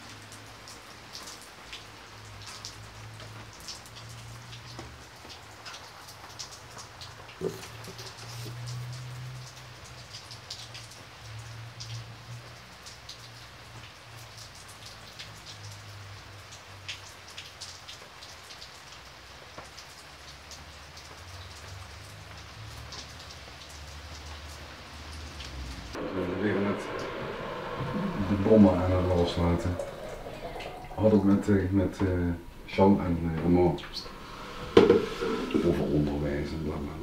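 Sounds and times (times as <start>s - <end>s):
rain falling on wet paving: 0.0s - 37.0s
low rumble: 25.9s - 37.0s.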